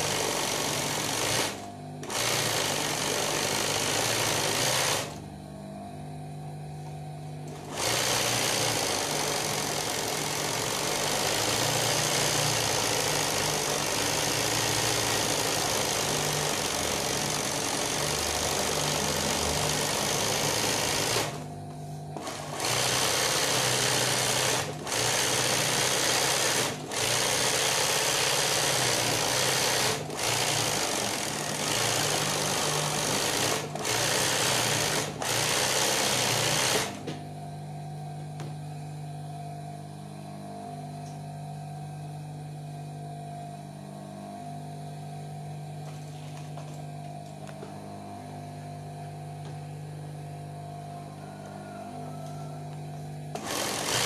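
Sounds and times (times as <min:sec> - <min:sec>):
sewing machine running fast: 0:00.0 - 0:05.2, 0:07.5 - 0:21.5, 0:22.2 - 0:37.1, 0:53.3 - 0:54.0.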